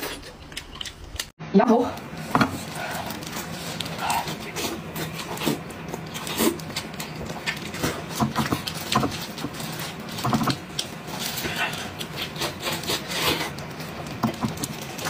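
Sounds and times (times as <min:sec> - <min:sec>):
plastic gloves crinkling: 0:02.1 - 0:15.0.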